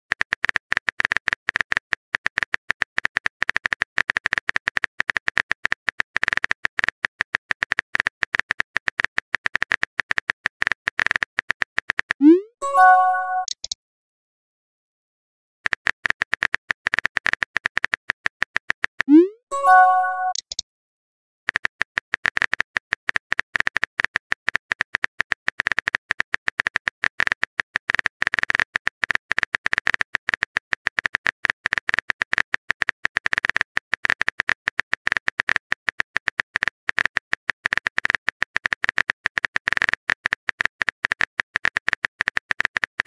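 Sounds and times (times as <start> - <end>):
phone keyboard typing clicks: 0.1 - 13.8, 15.7 - 20.6.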